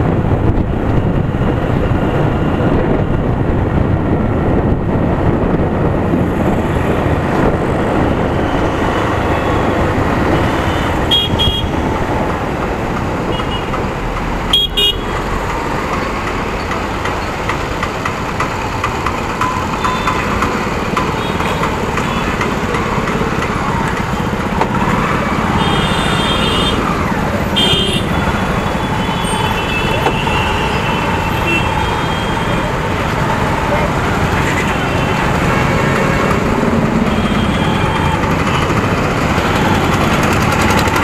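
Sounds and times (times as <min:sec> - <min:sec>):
wind on microphone: 0:00.0 - 0:14.0
motorcycle engine and road noise: 0:00.0 - 0:41.0
vehicle horns honking: 0:09.3 - 0:11.8, 0:13.3 - 0:13.7, 0:14.5 - 0:15.2, 0:25.5 - 0:32.6, 0:37.0 - 0:38.8.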